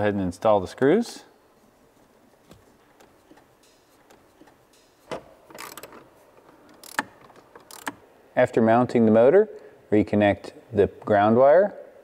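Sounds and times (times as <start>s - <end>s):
screwdriver clicking and scraping: 5.5s - 6.0s, 6.7s - 8.0s.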